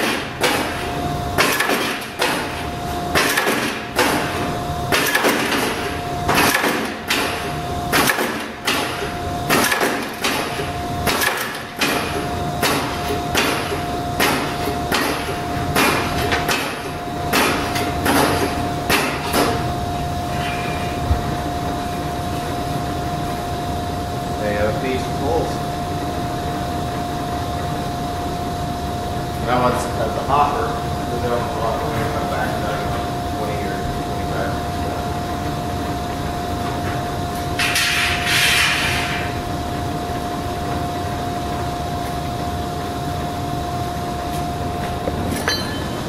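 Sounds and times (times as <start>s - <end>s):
machine whine: 0.0s - 46.0s.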